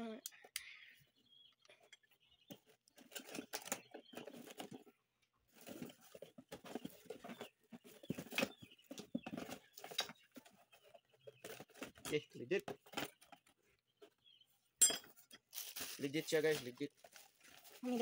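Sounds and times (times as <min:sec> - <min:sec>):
cardboard box rustling: 0:05.5 - 0:09.9.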